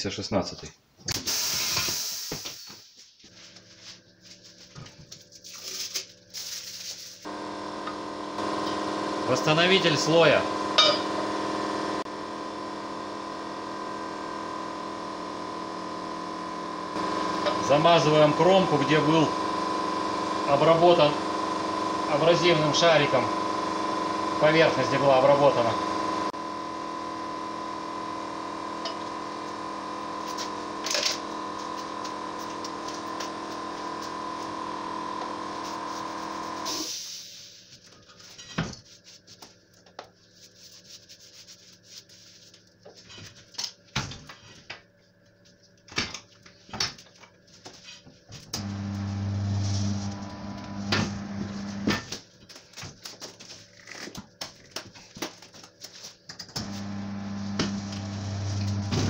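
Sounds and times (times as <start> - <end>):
machine hum: 7.2 - 36.7, 48.5 - 52.0, 56.6 - 59.0
turntable motor running: 7.2 - 36.7, 48.6 - 52.0, 56.6 - 59.0.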